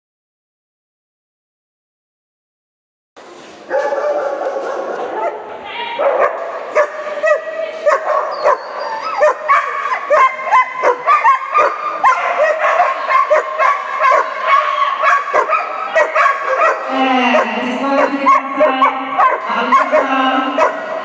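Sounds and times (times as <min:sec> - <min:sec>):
dog barking in high yips: 0:03.7 - 0:17.5, 0:18.3 - 0:20.8.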